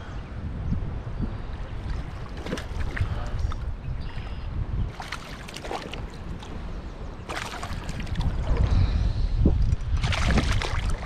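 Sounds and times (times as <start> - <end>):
wind rumble on microphone: 0.0 - 11.0
fish thrashing and splashing: 1.8 - 3.1, 4.9 - 6.6, 7.3 - 8.3.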